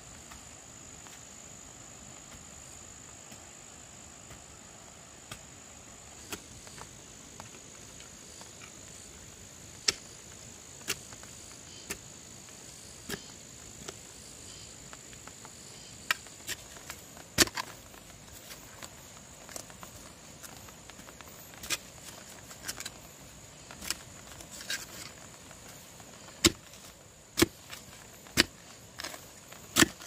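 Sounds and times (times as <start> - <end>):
high insect drone: 0.0 - 30.0
spade striking stony soil: 5.3 - 7.5, 9.8 - 10.2, 10.8 - 11.2, 13.0 - 14.0, 16.0 - 19.7, 21.5 - 23.0, 26.2 - 30.0.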